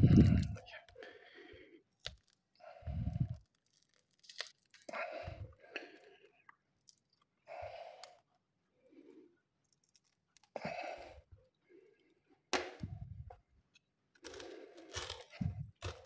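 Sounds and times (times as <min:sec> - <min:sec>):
fruit husk tearing apart: 0:01.9 - 0:05.2, 0:06.8 - 0:07.2, 0:09.6 - 0:10.8, 0:14.2 - 0:16.0.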